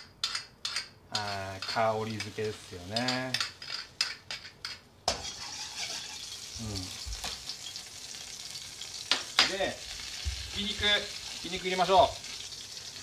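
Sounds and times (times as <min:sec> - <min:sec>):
oil sizzling in wok: 0:01.1 - 0:13.0
metal ladle scraping wok: 0:05.1 - 0:06.6.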